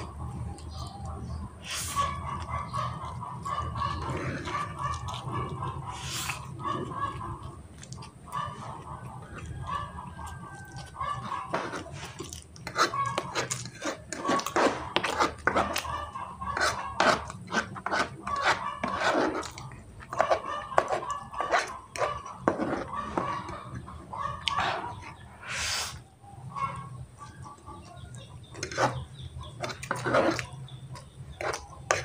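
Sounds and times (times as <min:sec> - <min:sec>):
fork scraping a tray: 0:03.9 - 0:05.2, 0:11.2 - 0:15.9, 0:16.5 - 0:23.8, 0:28.5 - 0:30.6, 0:31.4 - 0:32.0.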